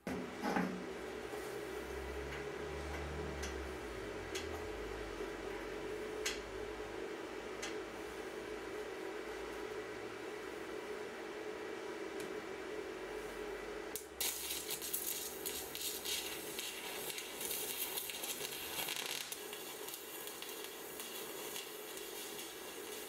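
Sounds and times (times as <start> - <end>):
steady machine hum: 0.0 - 23.0
laser cleaner crackling hiss: 14.0 - 23.0.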